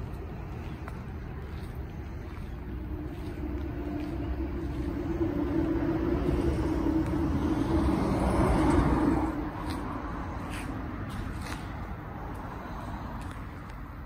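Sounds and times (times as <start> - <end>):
motor vehicle rumble: 0.0 - 14.0.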